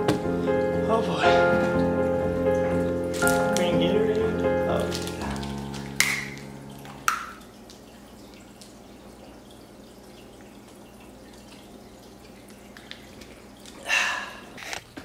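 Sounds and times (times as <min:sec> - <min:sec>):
plastic bottle opening click: 0:06.0 - 0:06.4.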